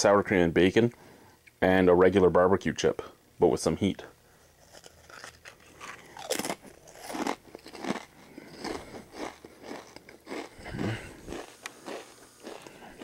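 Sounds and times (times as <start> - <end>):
potato chips crunching: 4.6 - 13.0.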